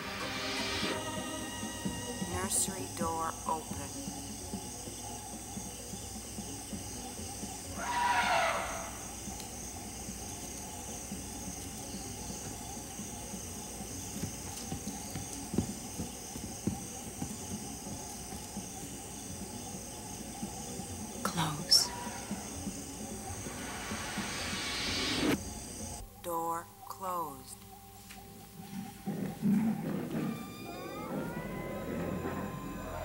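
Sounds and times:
elephant trumpeting: 7.8 - 9.2, 21.8 - 24.4, 29.1 - 33.0
high-pitched drone: 30.1 - 33.0.

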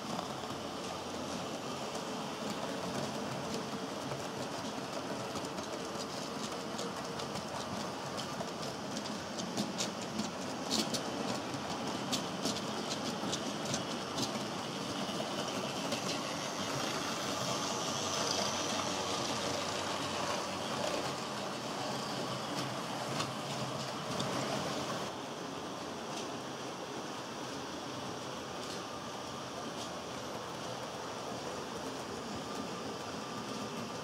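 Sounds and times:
model train wheels rattling: 0.0 - 25.2.

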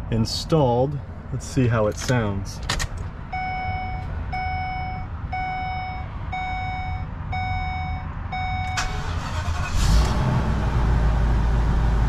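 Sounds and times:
dashboard warning chime: 3.3 - 9.1.

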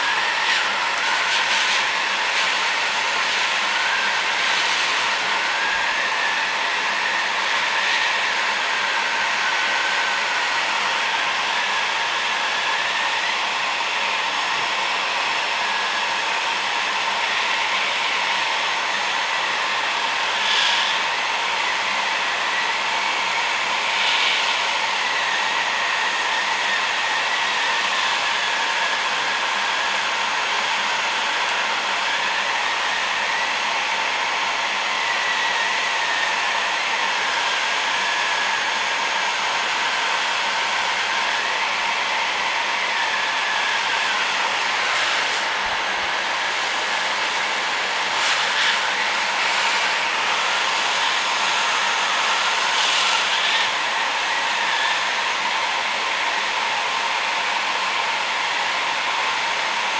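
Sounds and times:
heat gun blowing hot air: 0.0 - 59.9.

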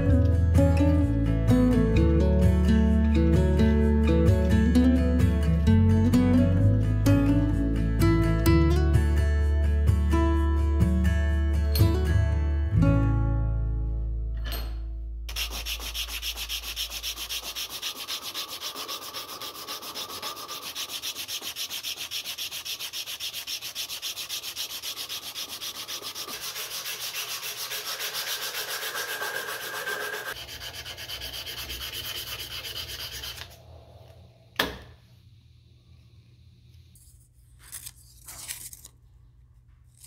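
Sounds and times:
sanding cloth rasping on wood: 15.3 - 33.5.

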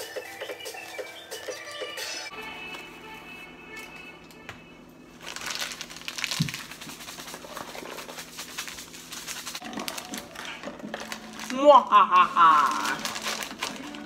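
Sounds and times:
background music: 0.0 - 4.8
candy bag crinkling and rattling: 5.2 - 14.0.

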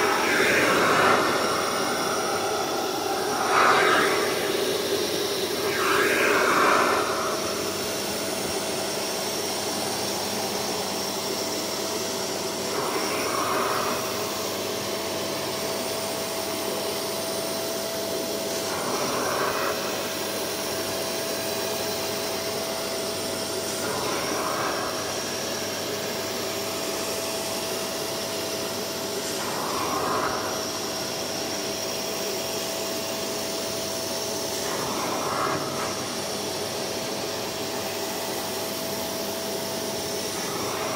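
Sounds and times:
rushing hiss of nozzle: 0.0 - 8.2
suction motor whining: 0.0 - 8.6.

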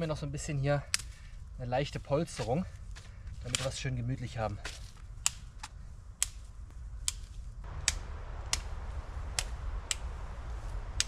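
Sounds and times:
dry twigs snapping: 0.8 - 1.3, 2.3 - 3.9, 4.6 - 11.0.

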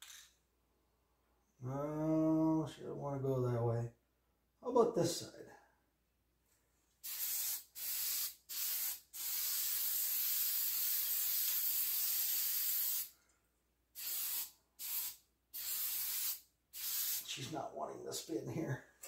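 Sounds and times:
spray paint can hissing: 7.0 - 13.1, 14.0 - 17.3.

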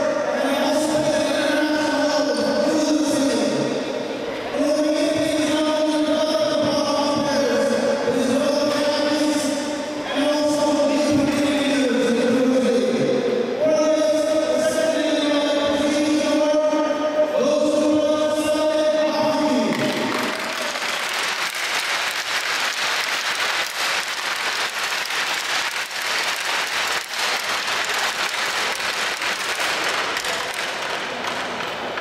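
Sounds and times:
crowd applauding: 19.7 - 32.0.

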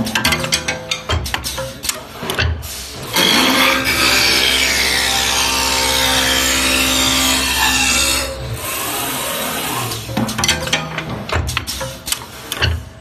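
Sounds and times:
lathe cutting wood: 3.1 - 10.0
lathe motor hum: 3.2 - 10.0.

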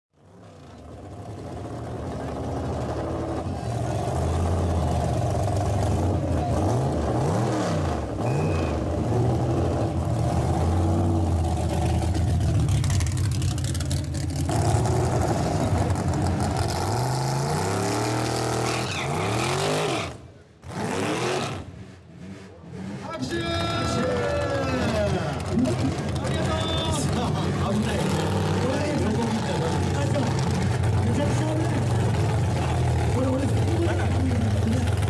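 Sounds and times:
engine revving: 1.0 - 35.0
car engine idling roughly: 11.4 - 14.5.

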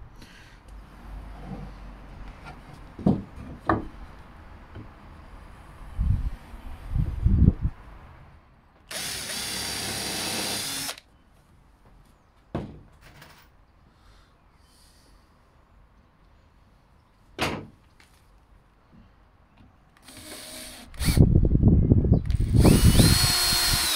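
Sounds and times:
cordless drill drilling into wood: 8.9 - 11.0, 20.0 - 21.3, 22.3 - 23.9.

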